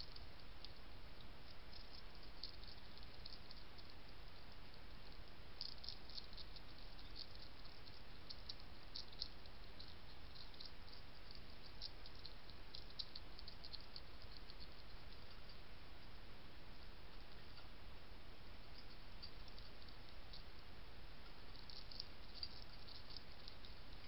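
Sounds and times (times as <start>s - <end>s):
steady hiss: 0.0s - 24.0s
hedgehog crunching dry food: 5.6s - 15.5s.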